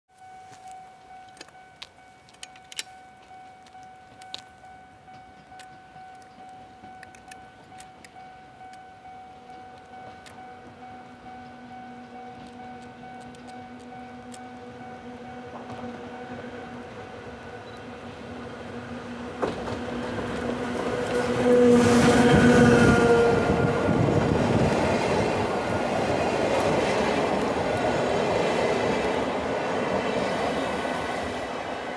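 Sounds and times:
high ringing tone: 0.1 - 18.0
electric locomotive humming: 0.2 - 31.9
train wheels rumbling on rails: 1.3 - 31.9.

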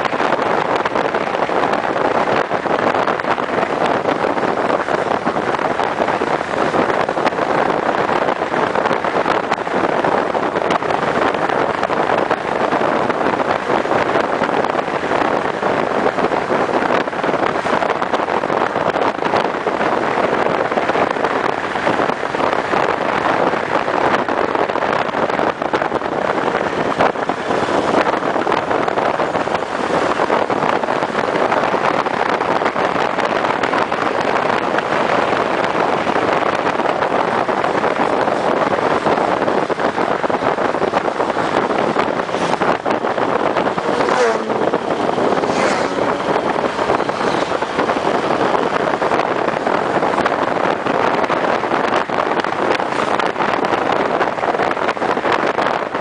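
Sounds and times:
wind rush over microphone: 0.0 - 56.0
motorcycle engine: 38.3 - 51.3.

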